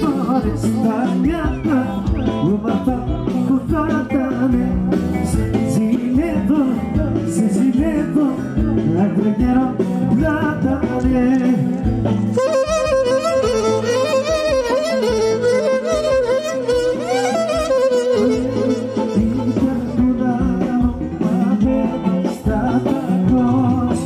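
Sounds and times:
folk band playing live: 0.0s - 24.0s
clarinet melody: 12.2s - 20.0s.

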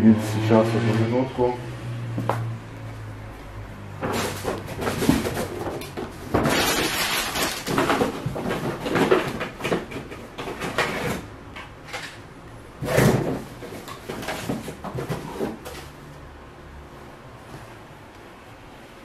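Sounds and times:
objects rustling and knocking: 3.9s - 16.0s.

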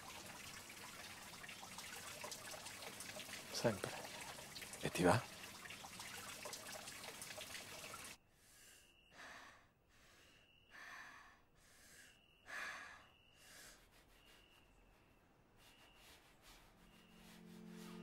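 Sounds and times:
heavy breathing: 8.3s - 14.5s.

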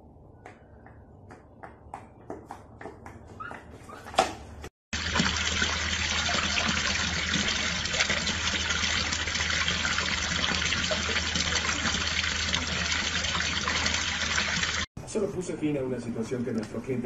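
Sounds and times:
water splashing on hard surface: 4.9s - 14.9s.

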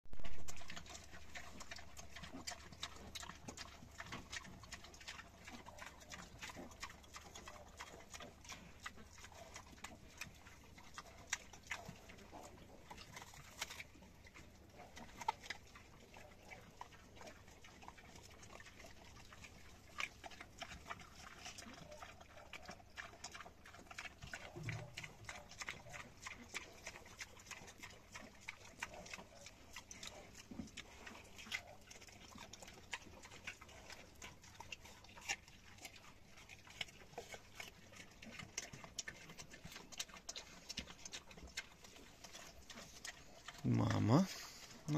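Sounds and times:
pig grunt: 42.3s - 44.9s.

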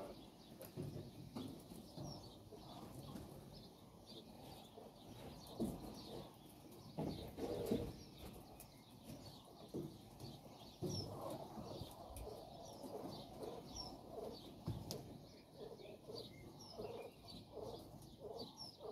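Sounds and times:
quail chirping: 10.8s - 18.9s.

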